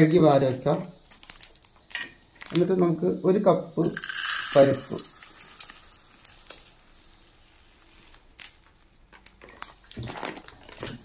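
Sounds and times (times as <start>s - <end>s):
plastic bag crinkling: 0.0s - 2.6s, 3.9s - 11.0s
lentils pouring into plastic cup: 3.8s - 8.4s.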